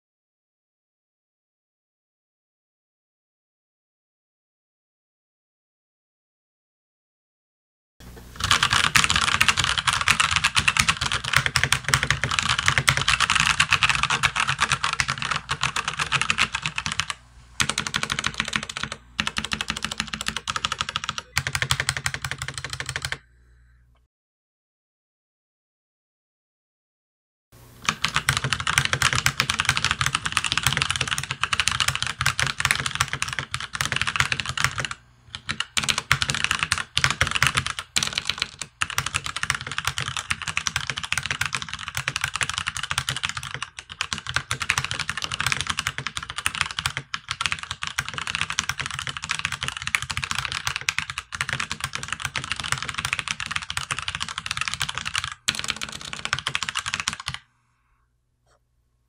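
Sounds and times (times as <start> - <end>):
mechanical keyboard typing: 8.4 - 23.2, 27.8 - 57.4.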